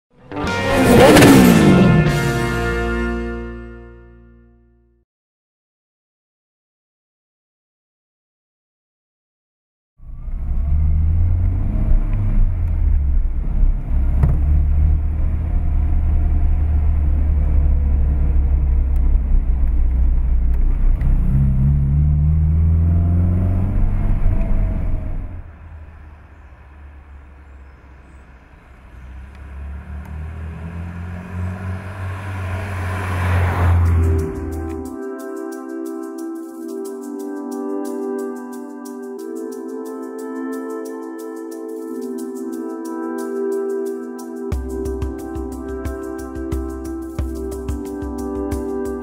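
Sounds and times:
car engine accelerating: 0:00.2 - 0:03.4, 0:10.0 - 0:35.0.

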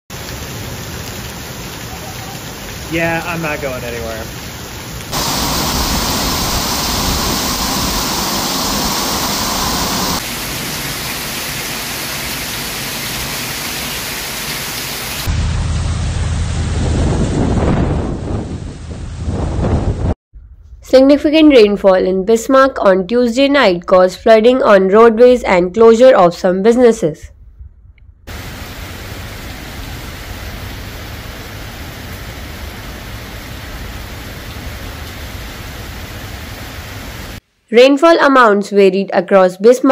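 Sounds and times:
heavy rain on pavement: 0:00.1 - 0:15.3, 0:28.3 - 0:37.4
low rumble: 0:15.3 - 0:21.0, 0:27.3 - 0:28.3.

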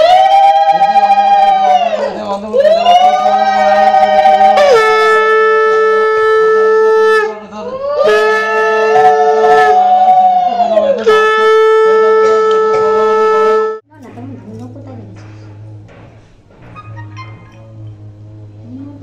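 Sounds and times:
conch shell blasts: 0:00.0 - 0:13.9.

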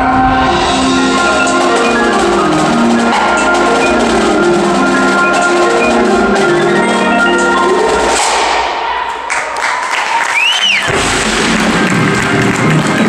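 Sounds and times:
marimbas playing: 0:00.0 - 0:08.6
drums and percussion strikes: 0:00.0 - 0:08.9, 0:10.8 - 0:13.0.

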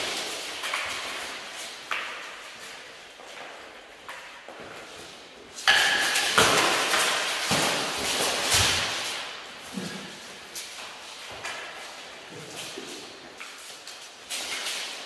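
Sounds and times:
armour clattering: 0:00.0 - 0:15.0.

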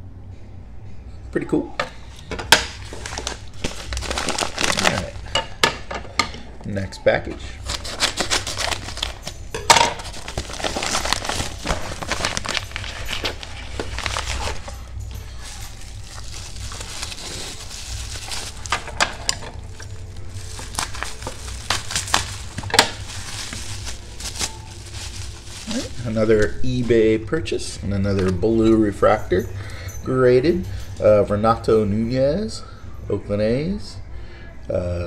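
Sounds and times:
crinkling of paper and plastic: 0:02.1 - 0:05.6, 0:07.3 - 0:27.1.

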